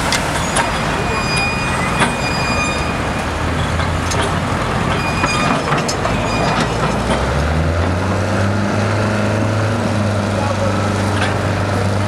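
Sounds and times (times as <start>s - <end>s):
diesel engine running: 0.0s - 12.0s
metallic clanks and knocks: 3.5s - 8.0s, 11.0s - 11.6s.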